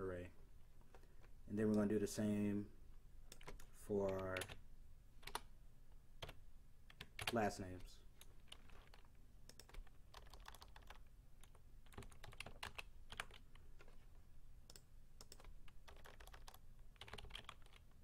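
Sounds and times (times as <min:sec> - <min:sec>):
keyboard typing clicks: 0:03.3 - 0:04.6, 0:08.2 - 0:14.0, 0:14.7 - 0:17.8.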